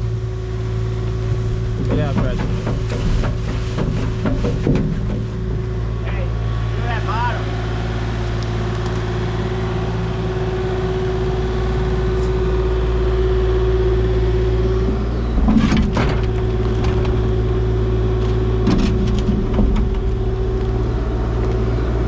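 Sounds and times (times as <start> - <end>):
diesel engine humming: 0.0 - 22.0.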